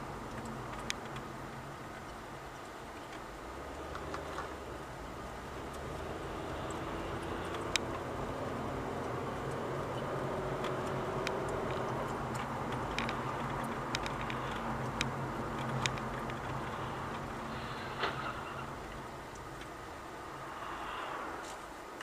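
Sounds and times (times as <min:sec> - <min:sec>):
vehicle engine and road noise: 0:00.0 - 0:22.0
sharp ticks: 0:08.7 - 0:17.4.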